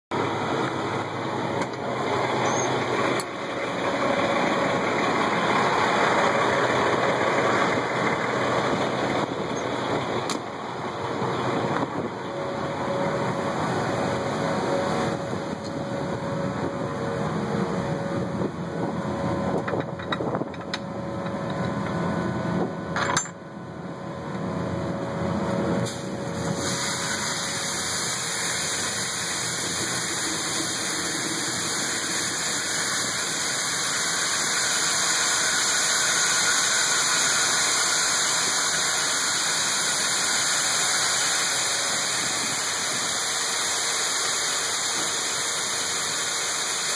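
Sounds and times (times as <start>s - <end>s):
truck diesel engine idling: 0.1s - 46.8s
grain pouring with rushing hiss: 25.8s - 46.9s.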